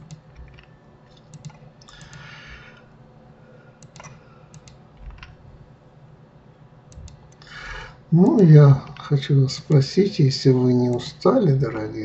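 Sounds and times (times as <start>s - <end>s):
keyboard keys and mouse clicking: 0.0s - 2.8s, 3.8s - 5.4s, 6.9s - 7.5s.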